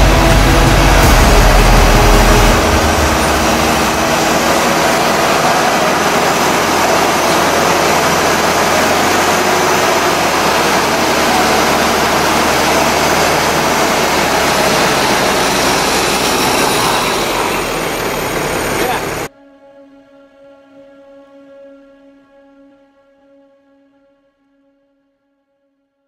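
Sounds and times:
truck engine: 0.0 - 19.3
winch whining: 0.0 - 19.3.

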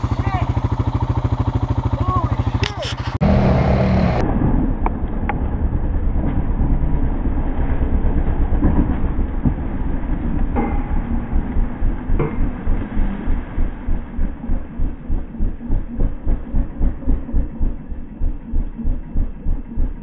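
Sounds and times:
engine running rough: 0.0 - 20.0.

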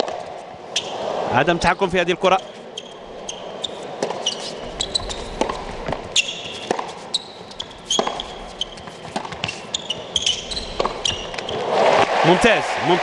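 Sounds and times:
shoes squeaking on court: 0.0 - 1.0, 1.6 - 12.1
ball bouncing on court: 2.4 - 12.2
tennis racket striking ball: 3.1 - 12.2.

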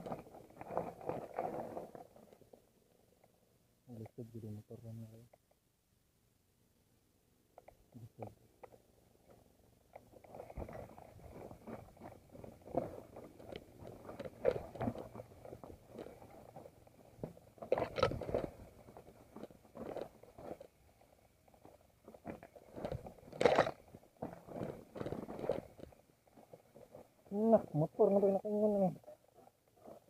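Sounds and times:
bike jolting over rocks: 0.0 - 2.2, 10.2 - 20.8, 21.9 - 27.2
bike tyres crunching over stones: 0.0 - 2.5, 10.0 - 27.3.

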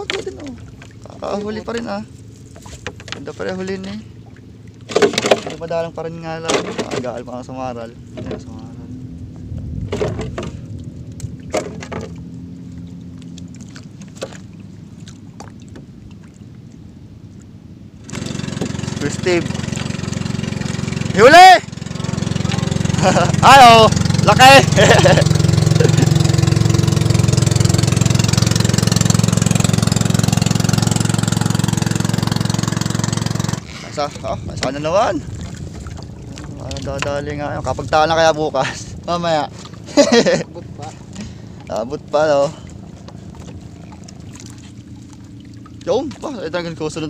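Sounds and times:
boat engine idling: 0.0 - 47.0
low hum: 0.0 - 47.0
water: 0.0 - 47.0
knocks on wooden boat: 4.9 - 5.6, 9.8 - 10.6, 11.5 - 12.2
wind noise: 8.0 - 12.2, 33.6 - 41.6.

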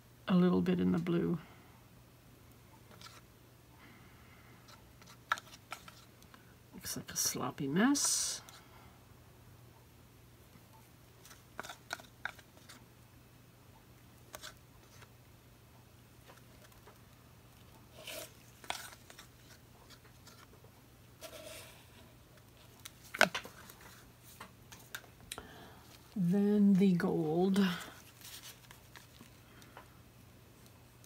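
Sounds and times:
low steady hum: 0.0 - 31.0
plastic cups tapping and crinkling: 5.0 - 6.4, 11.2 - 12.8, 18.0 - 20.7, 22.4 - 25.2.

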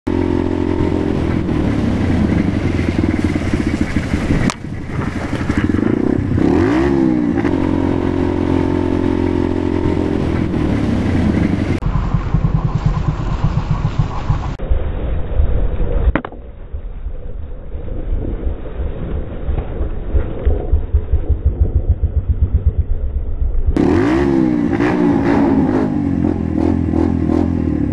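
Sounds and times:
motorcycle engine running: 0.0 - 14.6, 20.2 - 27.9.

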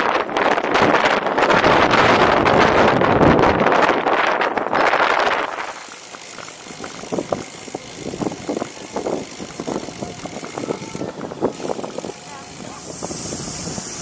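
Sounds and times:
wind gust on microphone: 0.0 - 5.6, 7.0 - 14.0
bicycle rolling over paving stones: 0.0 - 14.0
bike rattling and knocking: 0.0 - 14.0.

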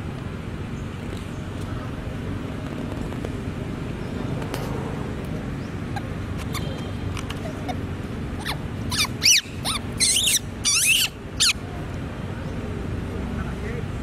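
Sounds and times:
monkey screeching: 5.8 - 11.6.

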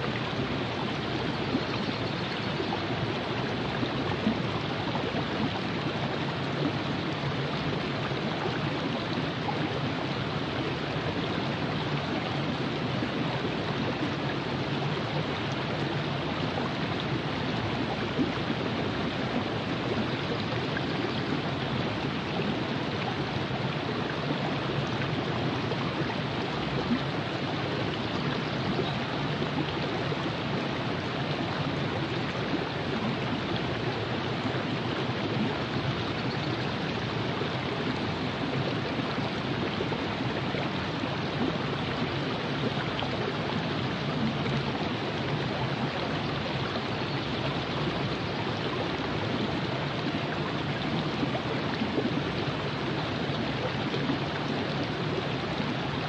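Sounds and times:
river flowing: 0.0 - 56.0.

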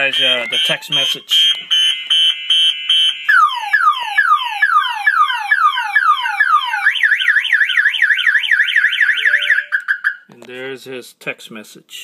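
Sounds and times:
alarm siren whooping and warbling: 3.3 - 10.1.

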